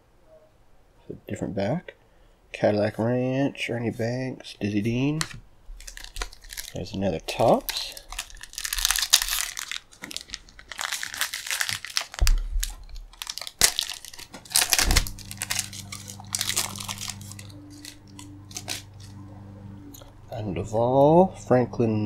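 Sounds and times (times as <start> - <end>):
foil wrapper crinkling and tearing: 5.2 - 19.2.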